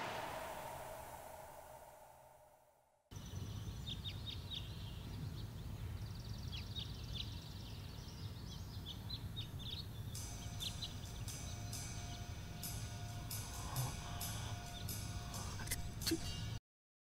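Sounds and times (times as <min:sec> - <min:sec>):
low ambient hum: 0:00.0 - 0:16.6
small birds chirping: 0:03.1 - 0:16.6
music: 0:10.1 - 0:16.6.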